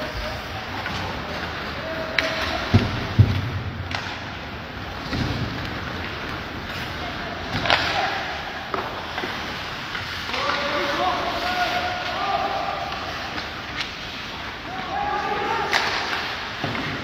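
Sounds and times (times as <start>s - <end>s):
stick hitting puck: 2.1s - 4.4s, 15.7s - 17.0s.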